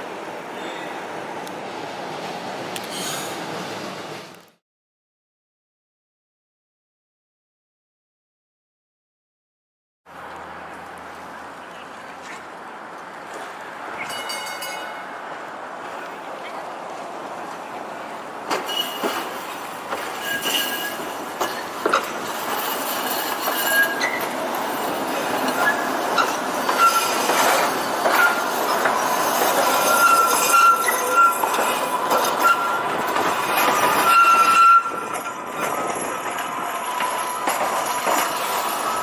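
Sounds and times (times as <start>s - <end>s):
tram wheels squealing: 0.4s - 1.4s, 13.9s - 16.6s, 18.2s - 39.0s
sharp clicks from rails: 18.4s - 39.0s.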